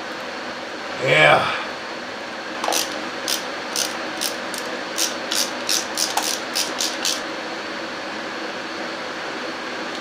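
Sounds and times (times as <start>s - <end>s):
steady low hum: 0.0s - 10.0s
ratchet wrench clicking: 2.7s - 7.2s.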